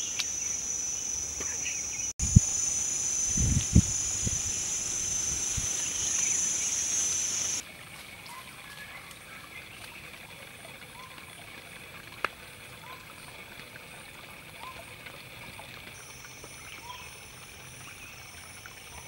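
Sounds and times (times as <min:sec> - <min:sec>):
high-pitched insect buzzing: 0:00.0 - 0:07.6
trickling stream: 0:00.0 - 0:19.0
faint bird chirps: 0:16.0 - 0:19.0.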